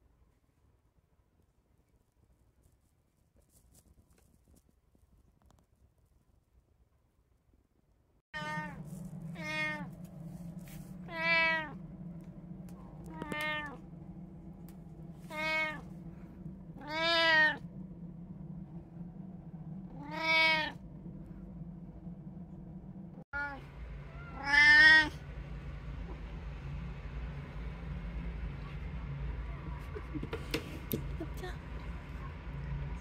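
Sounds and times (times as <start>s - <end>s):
steady low hum: 8.3s - 33.0s
cat meowing: 8.4s - 8.8s, 9.4s - 9.9s, 11.0s - 11.8s, 13.0s - 13.8s, 15.3s - 15.9s, 16.8s - 17.6s, 19.9s - 20.8s, 23.4s - 25.2s.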